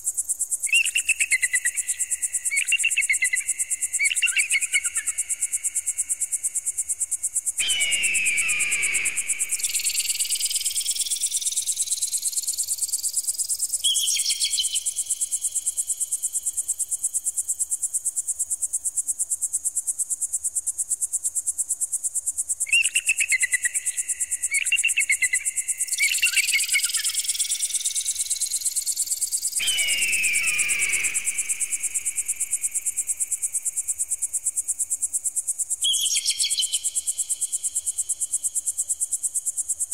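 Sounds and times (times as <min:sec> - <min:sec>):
descending shrill screeches: 0:07.6 - 0:10.9, 0:29.6 - 0:32.6
shrill repeated calls: 0:07.6 - 0:11.2, 0:29.6 - 0:33.0.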